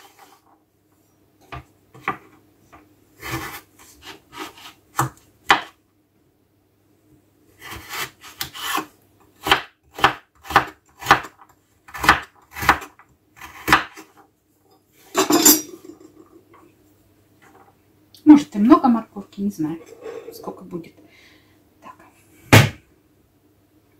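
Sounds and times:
knife scraping board: 0.0 - 0.4, 3.2 - 4.8, 7.6 - 8.9, 19.8 - 20.6
knife chopping on wooden board: 3.2 - 5.7, 7.6 - 14.0.

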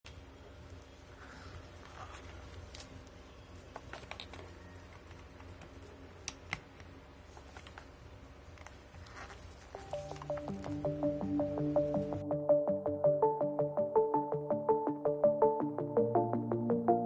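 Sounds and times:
background music: 9.8 - 17.0.

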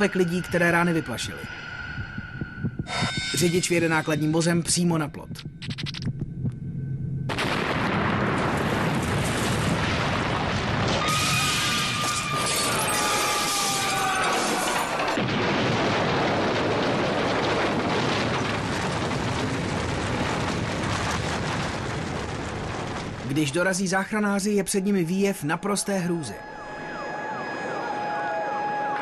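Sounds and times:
high steady tones: 0.0 - 7.3, 25.3 - 29.0
explosion blast: 7.3 - 12.8, 13.5 - 23.5
rumble of blast and debris: 7.3 - 24.2.

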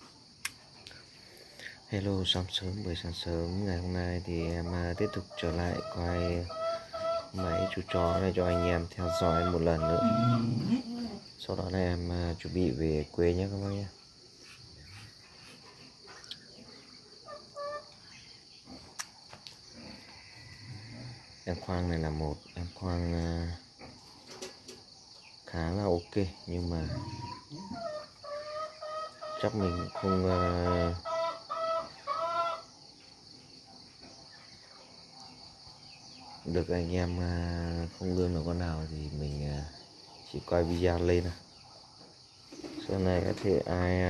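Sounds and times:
insects trilling: 0.0 - 44.0
rooster crowing: 5.7 - 10.8.

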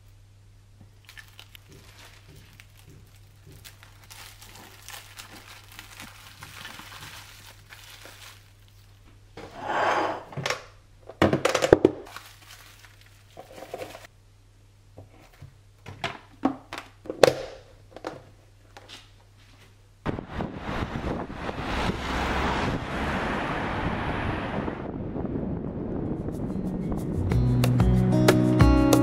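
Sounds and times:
low steady hum: 0.0 - 11.3, 12.1 - 26.5
plastic rustling: 0.8 - 9.1, 11.6 - 14.1
cling film crinkling: 0.9 - 9.1, 12.0 - 14.1.

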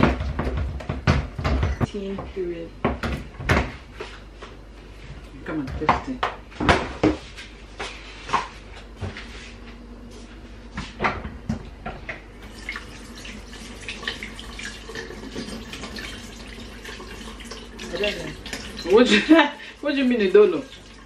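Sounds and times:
tap water running into sink: 12.4 - 19.1, 20.0 - 21.0.

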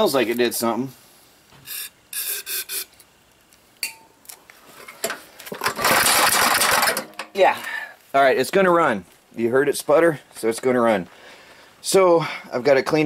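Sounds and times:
aerosol spray hisses: 1.6 - 3.0
recoil starter pulled: 5.0 - 7.2
engine cranking and sputtering: 5.6 - 7.1.

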